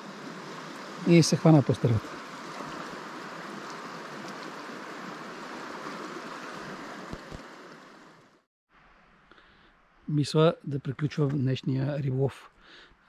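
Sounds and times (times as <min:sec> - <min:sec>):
river water rushing: 0:00.0 - 0:08.4.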